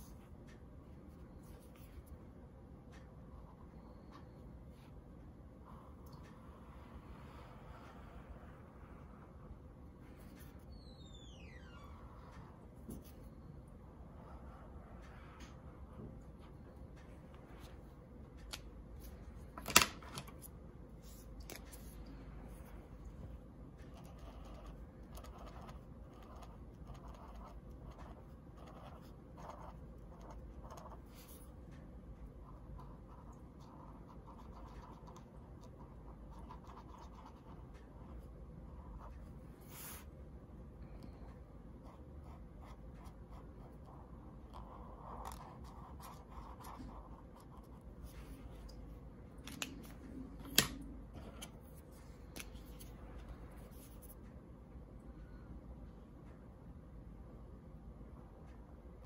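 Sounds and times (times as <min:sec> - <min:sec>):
marker strokes on paper: 0:39.6 - 0:40.1.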